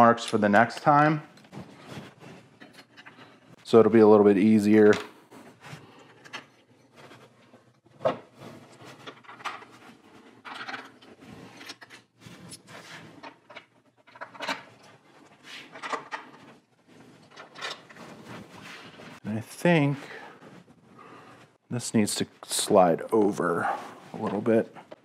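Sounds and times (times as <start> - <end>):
plastic parts knocking and scraping: 4.9 - 19.2.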